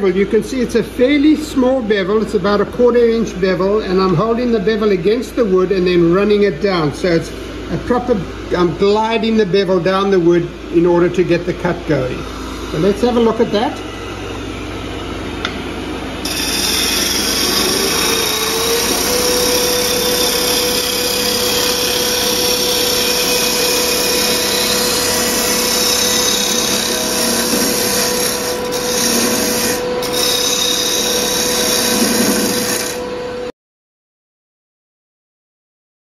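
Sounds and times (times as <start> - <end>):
lathe gouge hissing on wood: 16.2 - 33.0.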